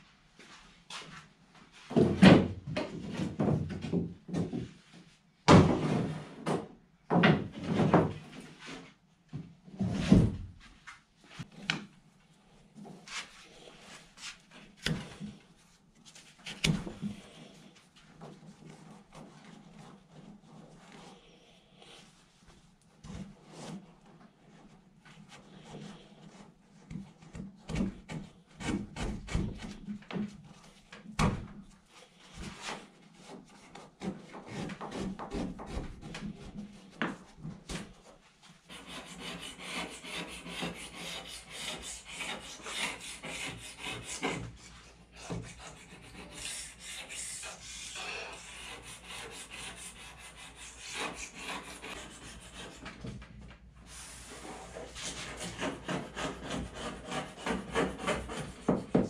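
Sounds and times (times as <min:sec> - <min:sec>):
razor blade scraping canoe hull: 0:38.6 - 0:53.0, 0:54.3 - 0:59.0.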